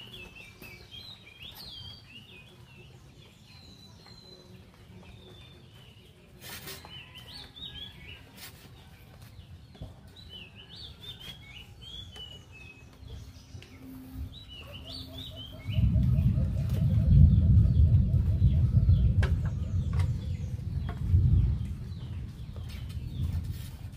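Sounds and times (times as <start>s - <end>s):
songbird chirping: 0.0s - 23.9s
loud low rumble: 15.2s - 23.5s.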